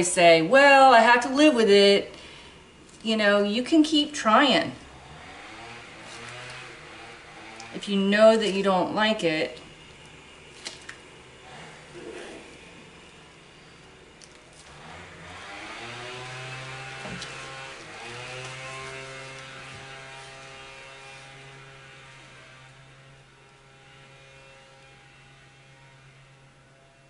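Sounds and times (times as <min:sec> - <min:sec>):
small petrol engine revving: 0:04.8 - 0:07.8, 0:14.6 - 0:25.6.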